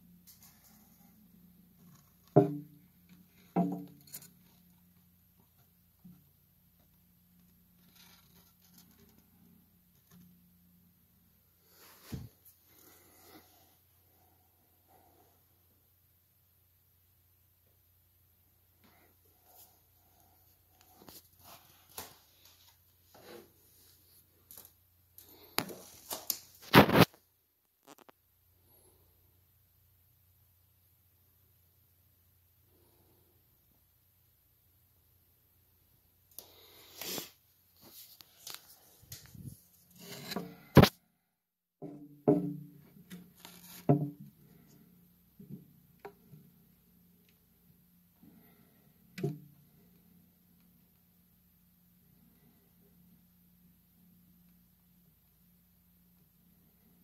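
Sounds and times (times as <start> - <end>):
scrape on plastic: 36.8 - 40.9.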